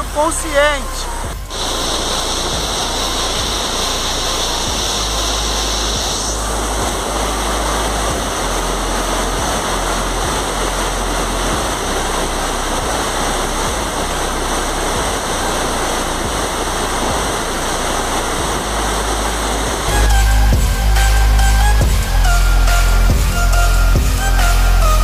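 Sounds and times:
river water rushing over rocks: 1.2s - 20.0s.

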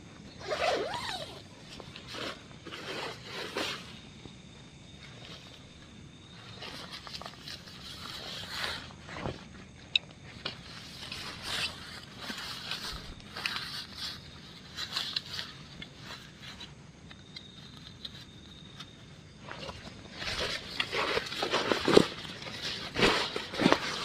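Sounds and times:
tent fabric rustling: 0.4s - 4.1s, 6.4s - 9.6s, 10.6s - 16.7s, 19.4s - 24.0s.

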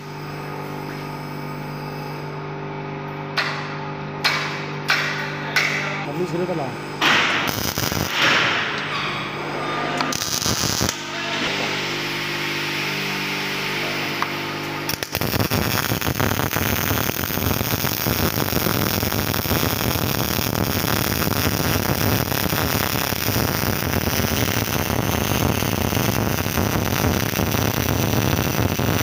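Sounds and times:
welding arc crackling: 6.1s - 9.0s, 10.0s - 13.0s, 13.7s - 29.0s.

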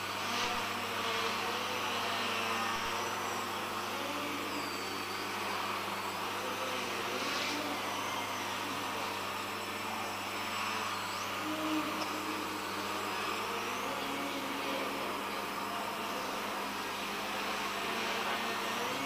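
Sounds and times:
quadcopter propellers whining: 0.0s - 19.0s.

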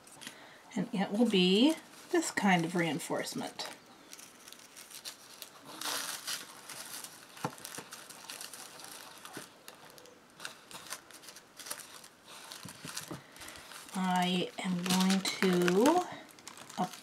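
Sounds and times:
tissue paper rustling: 1.1s - 17.0s.

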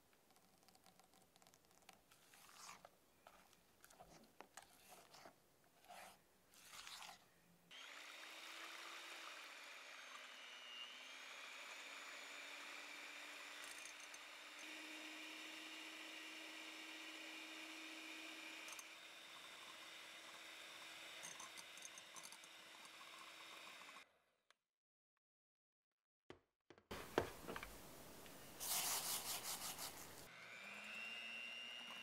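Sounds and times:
electric hand mixer whirring: 7.7s - 24.1s, 30.2s - 32.0s.

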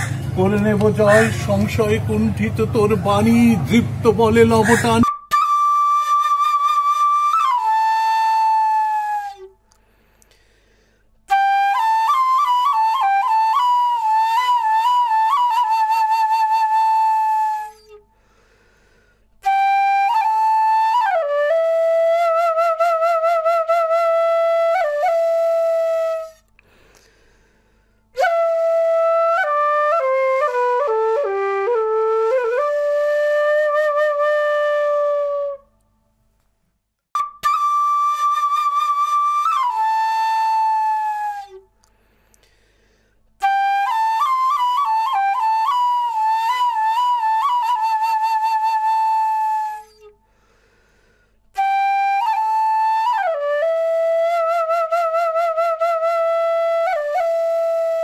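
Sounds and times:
solo flute melody: 4.7s - 9.8s, 11.3s - 18.1s, 19.4s - 26.5s, 28.2s - 35.8s, 37.2s - 41.8s, 43.4s - 50.2s, 51.5s - 58.0s.

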